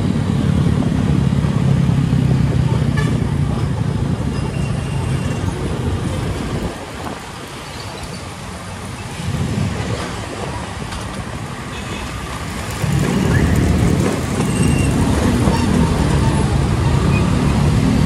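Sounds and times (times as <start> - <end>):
road traffic: 0.0 - 18.0.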